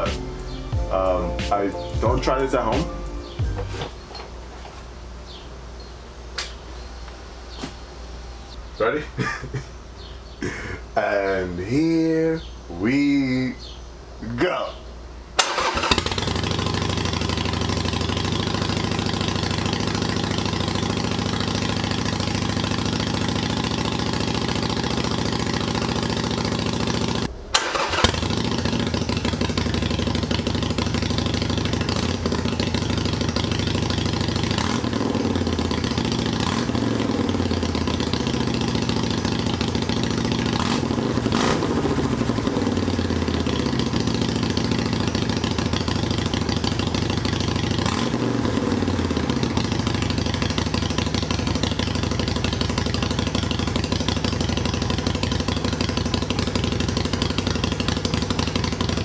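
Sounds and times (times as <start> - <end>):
motorcycle engine idling and revving: 15.4 - 59.0.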